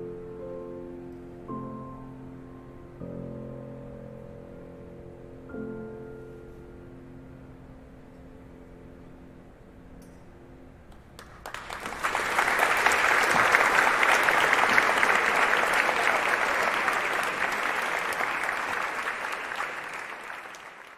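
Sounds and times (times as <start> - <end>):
piano chord: 0.0 - 9.8
audience applause: 11.2 - 20.9.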